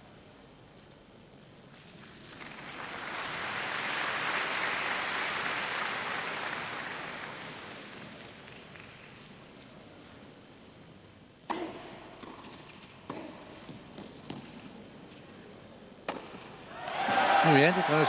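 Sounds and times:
crowd applauding: 2.4s - 8.7s, 16.7s - 18.0s.

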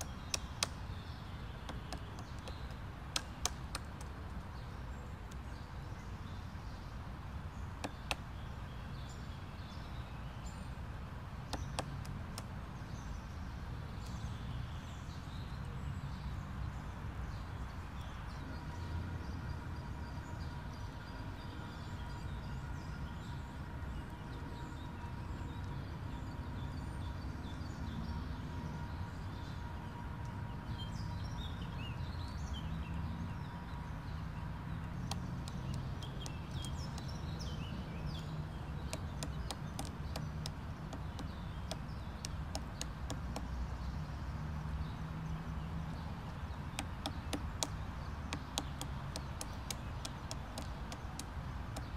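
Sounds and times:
woodpecker knocking on tree trunk: 0.0s - 0.9s, 1.6s - 4.4s, 7.8s - 8.3s, 11.5s - 12.5s, 35.0s - 37.4s, 38.7s - 43.6s, 46.7s - 51.9s
small birds chirping: 0.0s - 51.9s.

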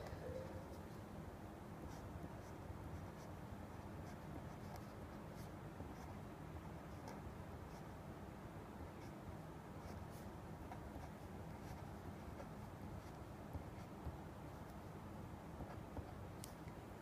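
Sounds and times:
low steady hum: 0.0s - 17.0s
pen scratching on paper: 1.9s - 6.2s, 9.8s - 13.9s.

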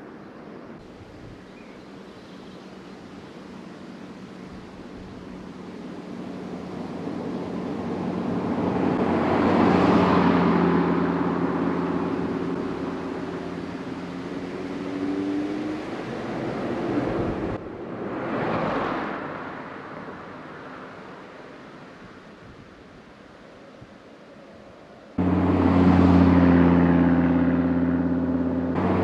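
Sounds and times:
car engine exhaust note: 25.2s - 29.0s.

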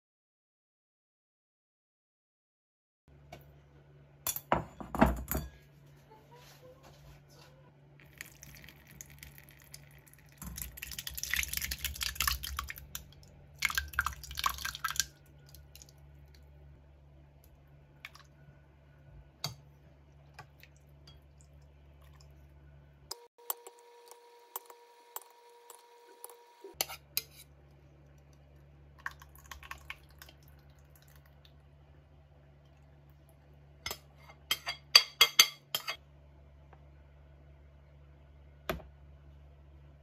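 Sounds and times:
low steady hum: 3.1s - 40.0s
yogurt glopping and splattering: 8.0s - 16.4s, 28.9s - 31.6s.

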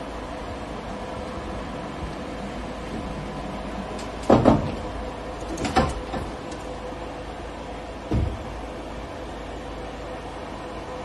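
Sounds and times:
steady hum: 0.0s - 11.0s
pallet jack clunks on metal lift: 3.9s - 6.8s, 8.0s - 8.6s.

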